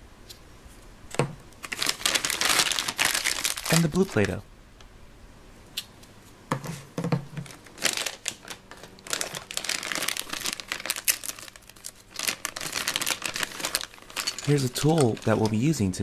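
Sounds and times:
plastic bag crinkling: 1.6 - 4.4, 7.3 - 16.0.

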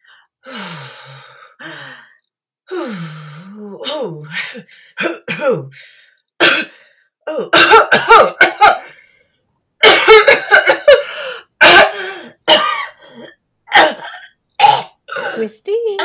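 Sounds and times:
woman coughing and choking: 3.8 - 5.8, 6.4 - 8.9, 9.8 - 16.0.

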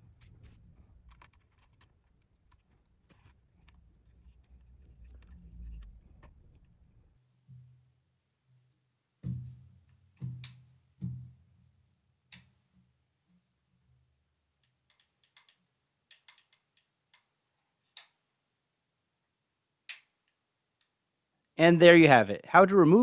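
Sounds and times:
faint small clicks: 14.6 - 17.3, 17.9 - 18.2.

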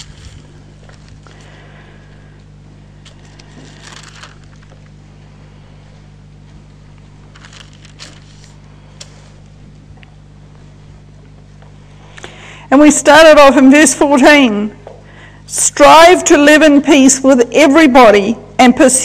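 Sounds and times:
book pages rustling: 0.0 - 1.5, 3.0 - 5.0, 7.3 - 9.5
low electrical hum: 0.0 - 19.0.

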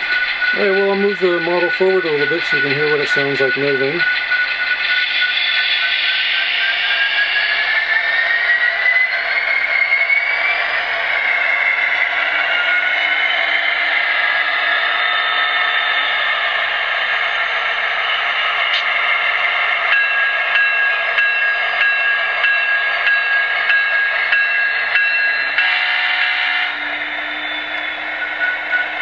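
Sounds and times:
model train diesel engine sound: 0.0 - 29.0
steady high tone: 0.0 - 29.0
rising whine: 23.3 - 29.0.

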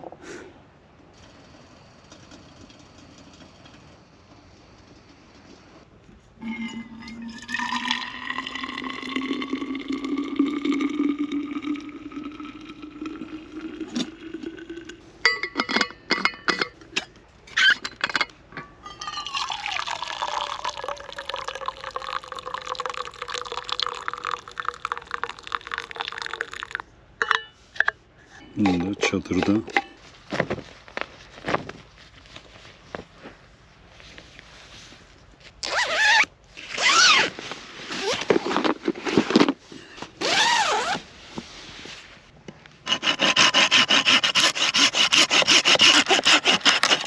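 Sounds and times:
liquid pouring into a vessel: 6.4 - 15.0, 19.1 - 26.8.

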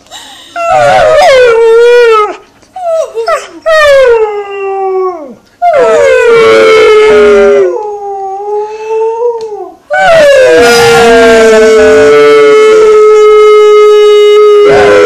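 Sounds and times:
dog howling: 0.6 - 15.0.

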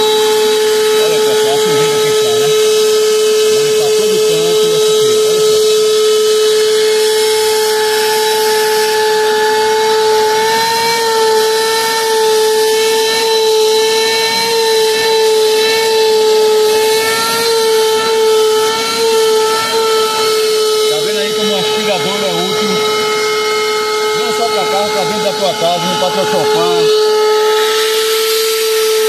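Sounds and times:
vacuum cleaner running: 0.0 - 29.0.

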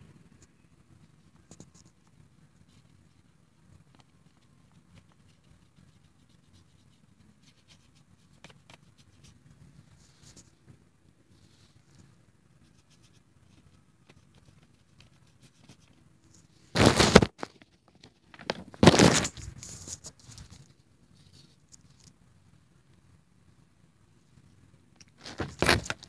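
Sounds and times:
loud rustling bursts: 16.7 - 17.4.

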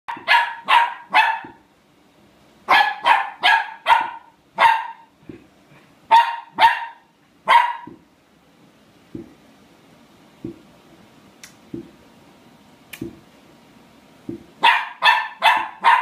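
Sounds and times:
puppy yapping: 0.1 - 1.6, 2.7 - 5.1, 6.1 - 8.0, 14.6 - 16.0.

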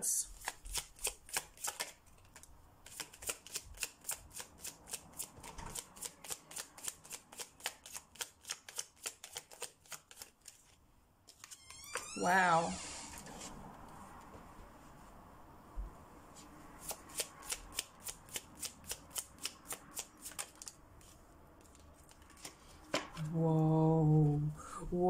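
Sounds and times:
cards being shuffled: 0.4 - 12.1, 16.8 - 23.3.

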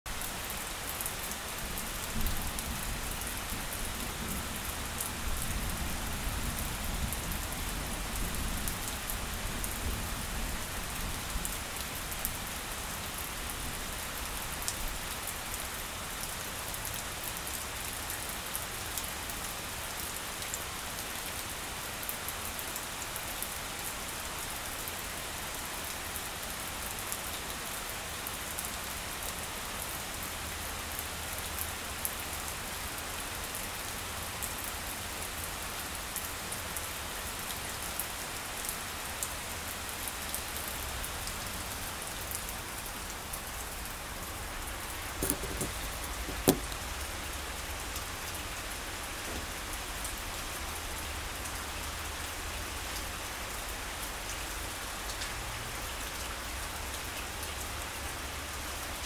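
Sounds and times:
rain falling on grass: 0.1 - 59.0.

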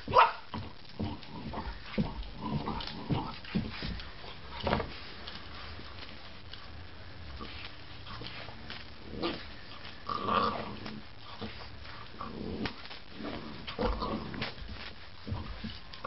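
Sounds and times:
dog growling: 1.0 - 3.6, 9.0 - 14.6.

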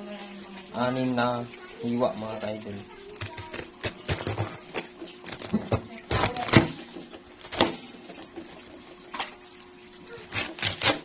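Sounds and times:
knife cutting cabbage: 3.1 - 7.8, 10.1 - 11.0.

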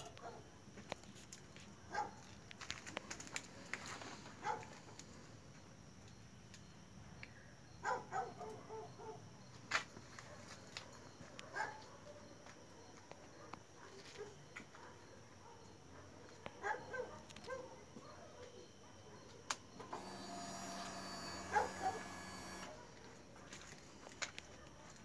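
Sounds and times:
fuel pump whirring: 19.8 - 22.8.

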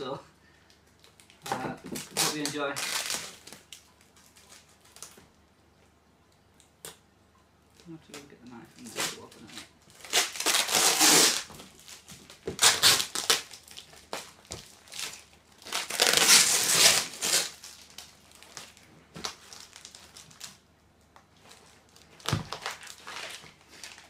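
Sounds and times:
cardboard and paper tearing: 8.8 - 13.6, 14.9 - 17.7.

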